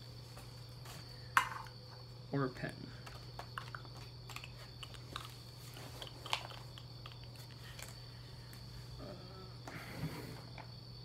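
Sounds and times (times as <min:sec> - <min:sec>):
steady low hum: 0:00.0 - 0:11.0
small objects rustling and clicking: 0:03.0 - 0:08.0.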